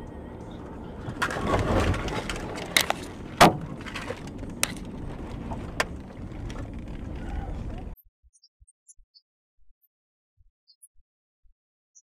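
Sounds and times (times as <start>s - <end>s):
rumbling rush: 0.0s - 8.0s
sharp knocks and bangs: 1.3s - 4.9s.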